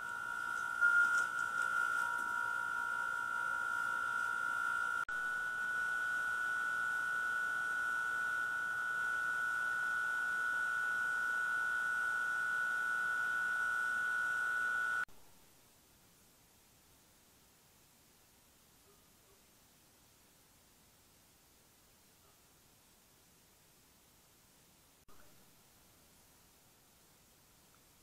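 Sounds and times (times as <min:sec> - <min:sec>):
high-pitched electronic tone: 0:00.0 - 0:15.0.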